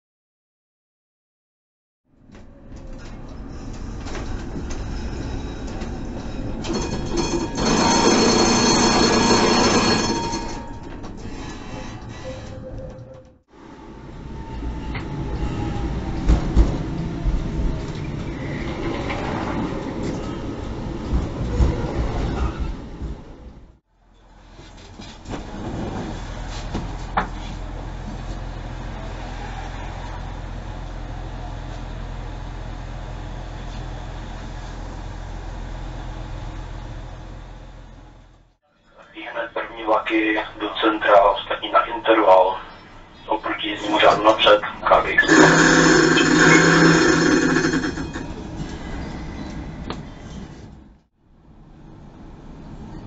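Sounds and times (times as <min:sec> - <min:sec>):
tram running rumble: 0:02.1 - 0:53.0
tram wheels squealing: 0:02.5 - 0:13.2, 0:14.2 - 0:23.5, 0:42.1 - 0:50.9.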